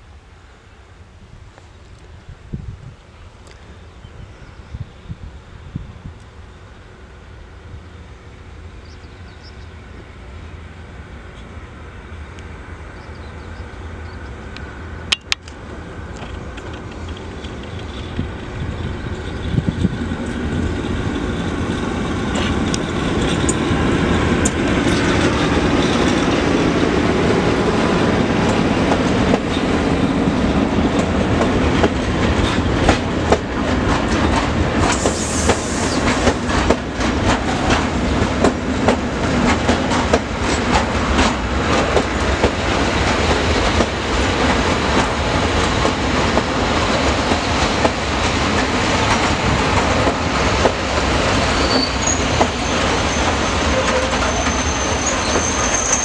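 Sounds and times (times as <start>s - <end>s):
electric locomotive humming: 0.0s - 56.0s
wheels clacking over rail joints: 18.9s - 27.7s, 28.4s - 56.0s.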